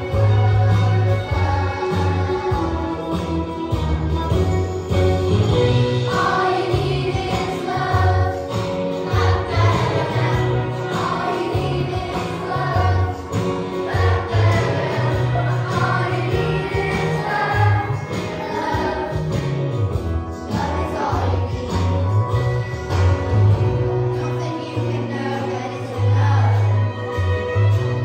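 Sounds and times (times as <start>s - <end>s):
children singing together: 0.0s - 4.6s, 5.5s - 22.3s, 24.1s - 26.9s
backing track with bass line: 0.0s - 28.0s.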